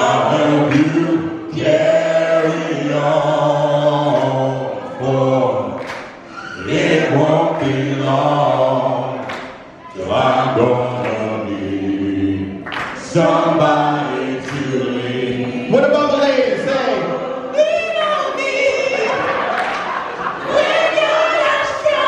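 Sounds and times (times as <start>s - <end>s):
men singing in harmony: 0.0s - 17.6s.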